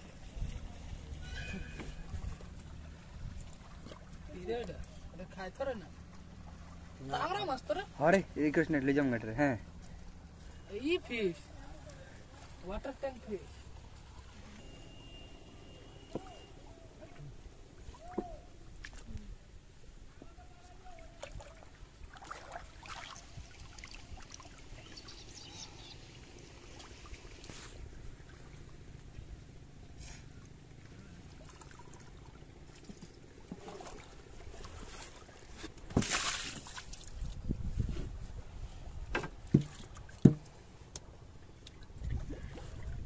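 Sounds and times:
small splashes: 0:00.0 - 0:08.0, 0:11.8 - 0:19.3, 0:20.6 - 0:37.5, 0:39.4 - 0:43.0
water sloshing and dripping: 0:00.0 - 0:19.2, 0:20.2 - 0:37.5, 0:39.0 - 0:43.0
bamboo knocking on wooden boat: 0:39.1 - 0:40.6.

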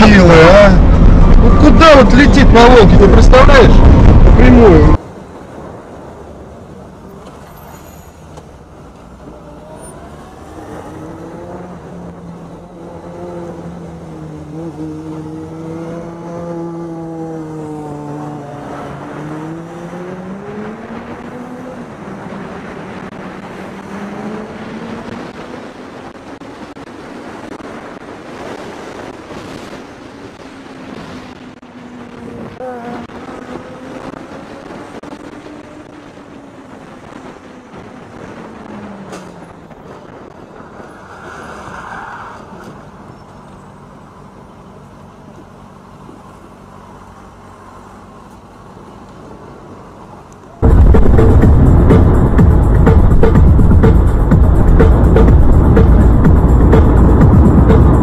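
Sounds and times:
road noise: 0:00.0 - 0:58.0
motorcycle engine running: 0:50.6 - 0:58.0.

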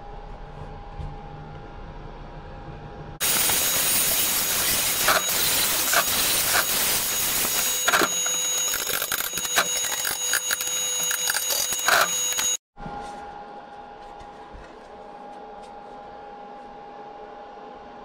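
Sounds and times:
angle grinder grinding metal: 0:03.2 - 0:12.6.

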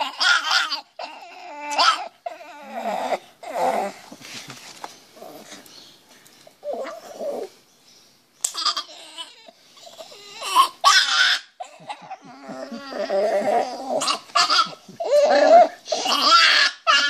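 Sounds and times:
small dog squealing and whining: 0:00.0 - 0:04.0, 0:06.6 - 0:07.5, 0:08.5 - 0:17.0.

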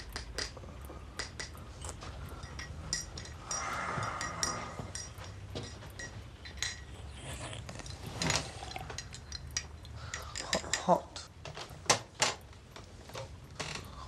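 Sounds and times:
crockery and cutlery clinking: 0:02.3 - 0:11.2.

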